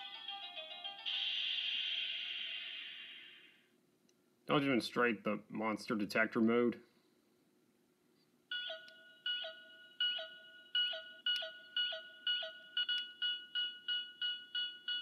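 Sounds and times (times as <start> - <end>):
electronic toy beeping: 0.0 - 3.6, 8.5 - 15.0.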